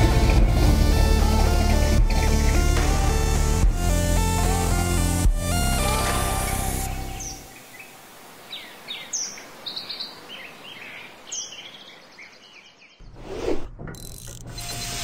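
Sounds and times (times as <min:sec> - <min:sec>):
background music: 0:00.0 - 0:07.6
birds chirping: 0:00.0 - 0:13.1.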